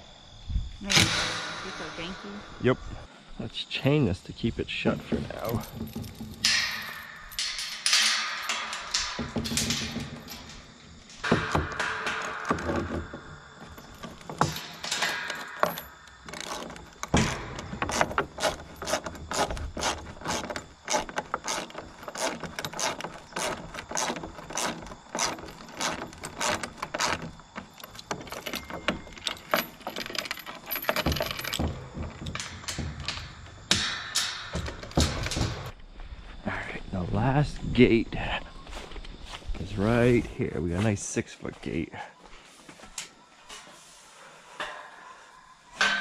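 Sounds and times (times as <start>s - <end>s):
chain clinking against metal gate: 4.7s - 35.7s, 44.6s - 46.0s.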